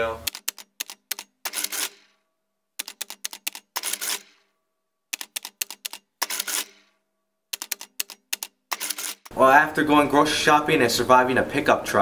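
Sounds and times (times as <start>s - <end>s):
typewriter carriage stroke: 0.2s - 2.1s, 2.8s - 4.4s, 5.2s - 6.9s, 7.6s - 9.3s
typewriter key clacks: 0.3s - 2.0s, 2.8s - 4.3s, 5.2s - 6.7s, 7.6s - 9.3s.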